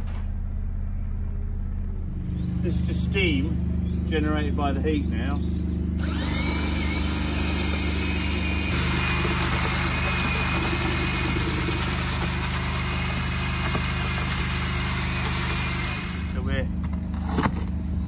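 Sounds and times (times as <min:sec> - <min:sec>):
electric paddle mixer churning mortar: 0:06.0 - 0:16.4.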